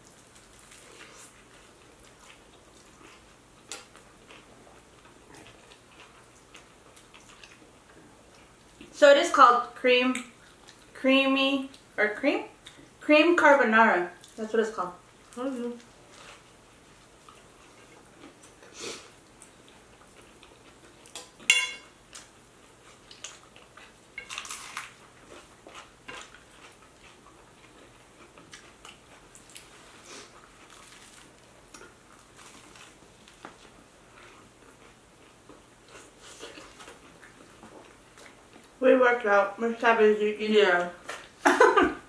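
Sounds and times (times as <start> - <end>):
biting and chewing: 22.1 - 38.8.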